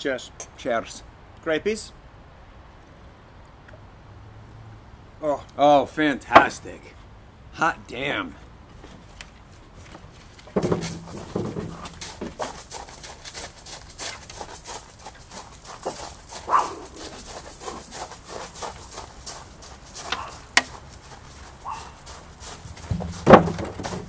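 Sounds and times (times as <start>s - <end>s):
clicks and knocks: 22.7s - 24.0s.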